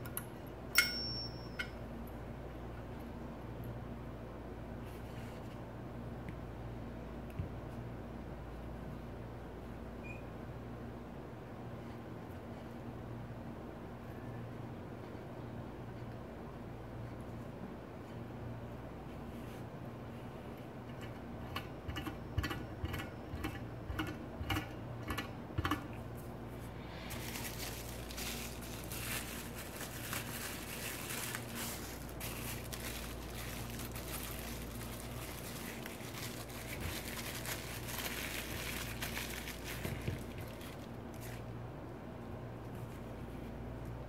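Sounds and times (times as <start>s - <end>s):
plastic bags crinkling: 27.0s - 41.5s.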